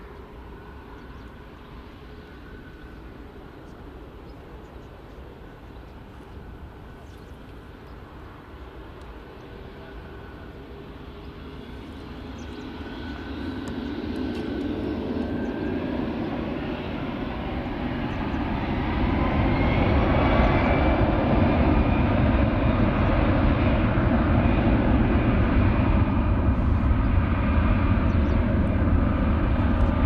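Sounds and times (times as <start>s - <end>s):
jet engines spooling up: 5.2s - 30.0s
rising jet whine: 7.6s - 30.0s.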